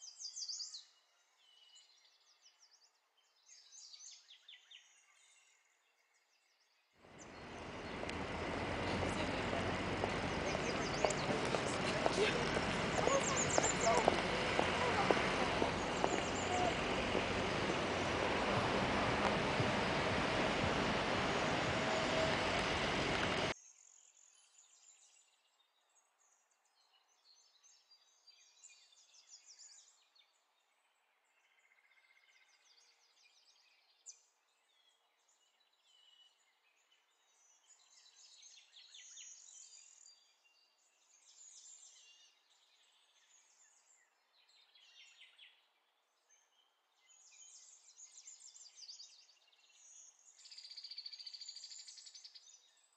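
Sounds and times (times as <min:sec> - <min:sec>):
outdoor street noise: 0:07.0 - 0:23.6.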